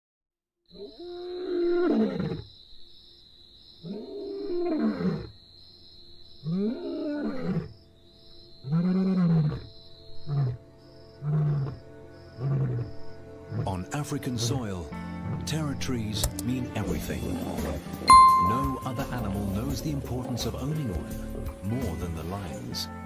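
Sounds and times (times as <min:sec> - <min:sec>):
lion grunting: 0:17.0 - 0:17.9.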